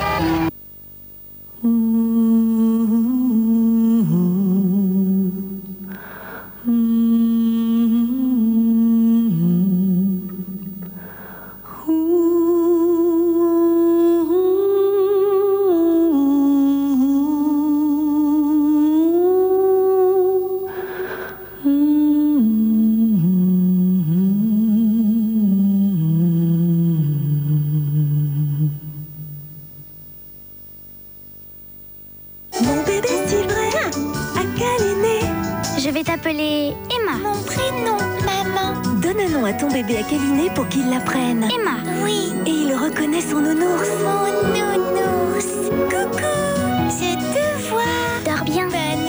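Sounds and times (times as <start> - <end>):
person humming: 1.5 - 30.3, 39.8 - 49.0.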